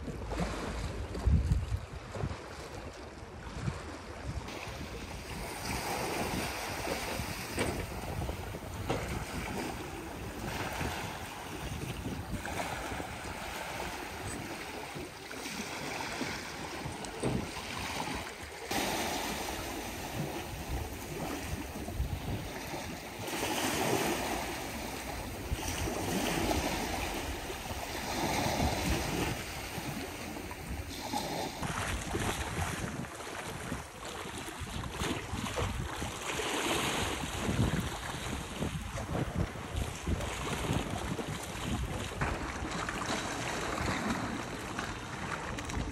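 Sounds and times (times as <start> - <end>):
wind buffeting microphone: 0.0 - 2.6, 3.2 - 45.9
sea waves washing in: 4.5 - 33.8.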